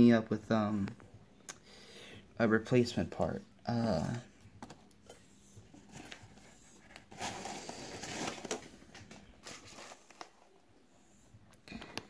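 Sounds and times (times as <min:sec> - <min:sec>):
cardboard rustling: 0:05.6 - 0:10.6.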